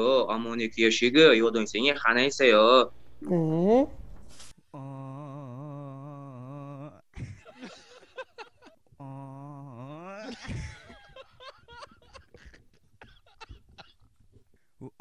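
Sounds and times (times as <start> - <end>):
man humming a long note: 4.7 - 7.0
laughter: 7.1 - 8.9, 10.2 - 14.2.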